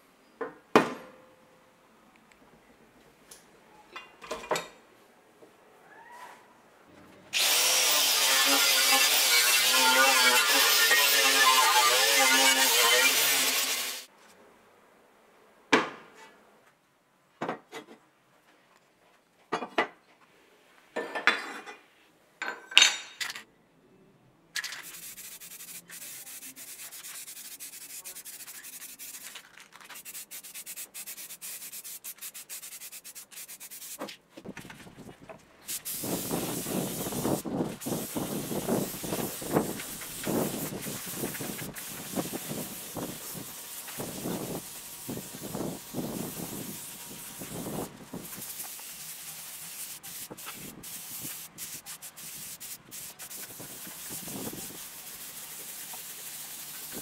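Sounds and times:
spray paint hissing: 0:08.4 - 0:14.1, 0:24.6 - 0:34.0, 0:35.7 - 0:57.0.

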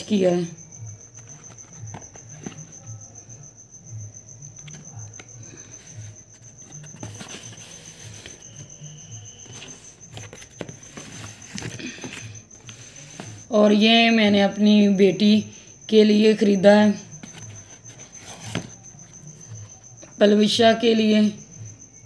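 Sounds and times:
cardboard boxes rustling: 0:01.1 - 0:03.0, 0:04.7 - 0:13.5, 0:17.1 - 0:19.8.

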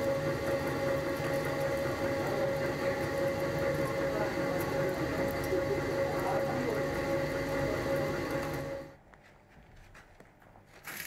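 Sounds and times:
factory machine humming and whining: 0:00.0 - 0:09.0.

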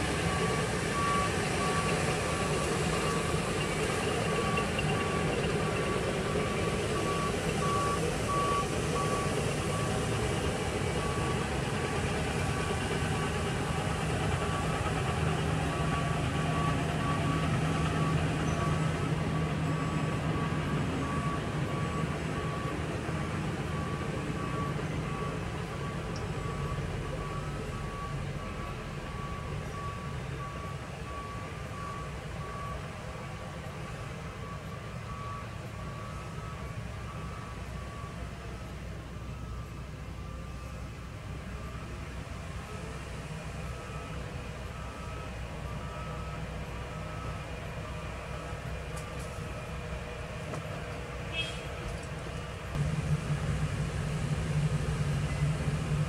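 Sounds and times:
diesel engines of heavy machinery: 0:00.0 - 0:56.0
backup alarm beeping: 0:00.2 - 0:32.8.

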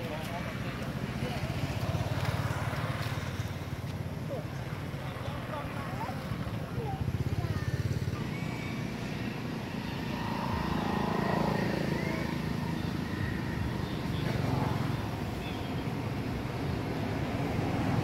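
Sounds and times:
passing road traffic rumble: 0:00.0 - 0:18.0.

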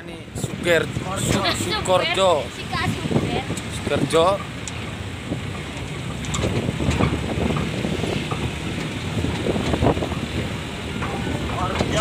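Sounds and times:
vehicle road rumble: 0:00.0 - 0:12.0
wind buffeting microphone: 0:00.0 - 0:12.0
rattles and knocks: 0:03.4 - 0:12.0.

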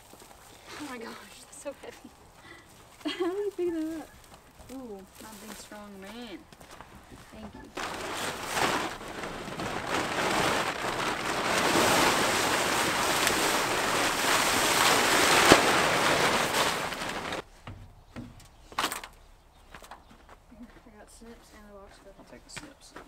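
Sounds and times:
plastic tarp crinkling and rustling: 0:07.6 - 0:17.5
tarp snapping: 0:07.8 - 0:17.4, 0:18.8 - 0:19.2.

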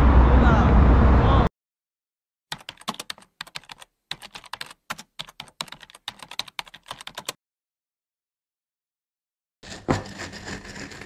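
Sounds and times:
typing on a keyboard: 0:02.5 - 0:07.4.

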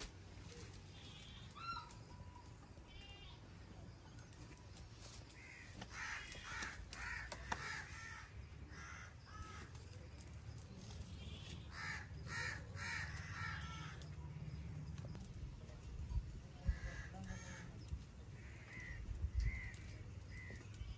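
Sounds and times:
crow cawing: 0:05.4 - 0:09.8, 0:11.7 - 0:14.1, 0:18.4 - 0:20.6.

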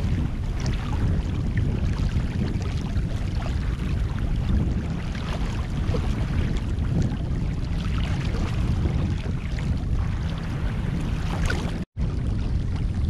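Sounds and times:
water splashing along hull: 0:00.0 - 0:13.0
wind buffeting microphone: 0:00.0 - 0:13.0.

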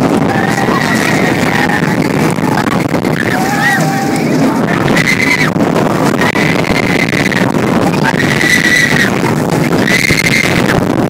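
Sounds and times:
wind rush and track rumble: 0:00.0 - 0:11.0
high squealing cries: 0:03.1 - 0:05.6, 0:08.1 - 0:09.1.

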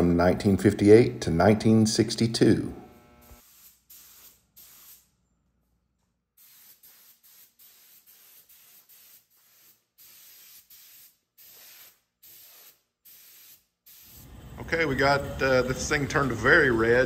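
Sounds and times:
spray gun hissing: 0:03.2 - 0:05.1, 0:06.4 - 0:14.5.

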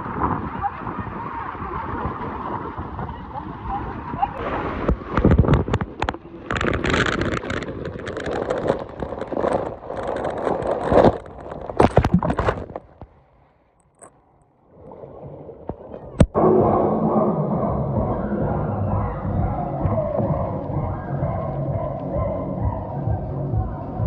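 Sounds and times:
water rushing and splashing: 0:00.0 - 0:13.1
splashes plunging into pool: 0:04.0 - 0:07.3.

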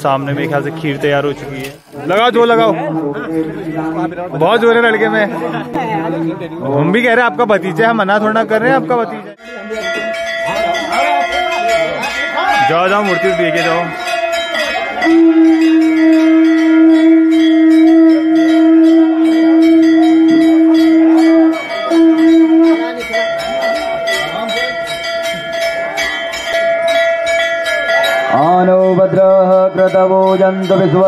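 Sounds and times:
temple bells ringing rapidly: 0:00.0 - 0:31.0
horn blast: 0:15.0 - 0:22.9.

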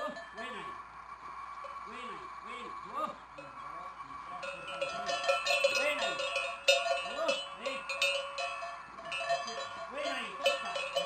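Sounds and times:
cattle bells clanging: 0:00.0 - 0:11.0.

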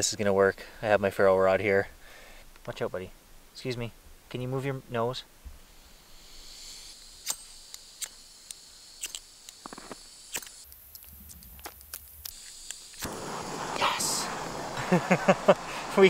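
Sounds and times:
soft gas hiss: 0:00.0 - 0:16.0
gas burner rushing: 0:12.2 - 0:16.0.

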